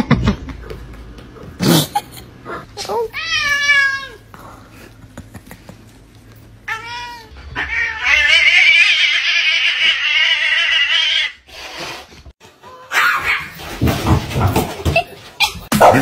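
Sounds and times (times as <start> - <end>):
cats yowling and screeching: 6.7 - 11.5, 12.6 - 13.6.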